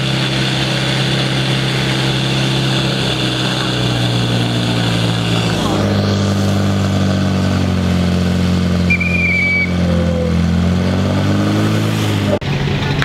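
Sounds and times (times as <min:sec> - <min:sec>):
pump engine running at high revs: 0:00.0 - 0:13.0
short high whistle: 0:08.9 - 0:10.3.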